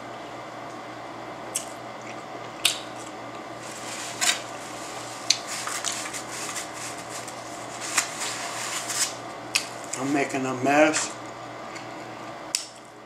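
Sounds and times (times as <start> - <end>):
low room hum: 0.0 - 13.0
food packaging crackling and rustling: 3.6 - 10.3.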